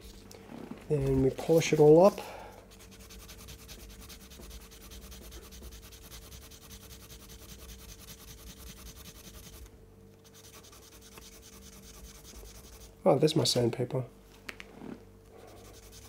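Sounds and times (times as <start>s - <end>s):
fast rubbing strokes: 1.4s - 13.0s, 15.3s - 16.0s.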